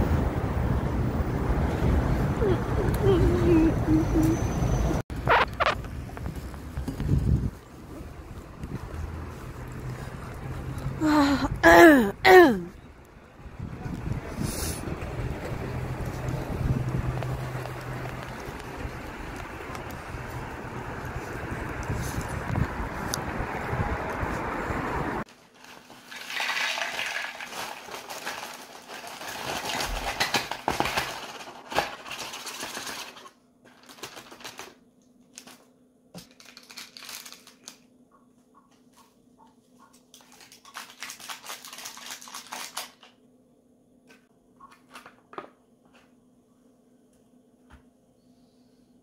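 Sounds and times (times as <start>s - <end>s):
wind noise on microphone: 5.2s - 9.0s, 13.4s - 15.4s, 16.0s - 25.2s
small hard objects clinking: 25.7s - 34.5s.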